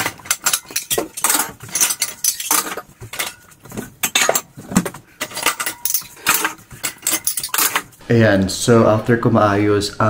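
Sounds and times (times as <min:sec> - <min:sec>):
dishes clinking and clattering: 0:00.0 - 0:08.0.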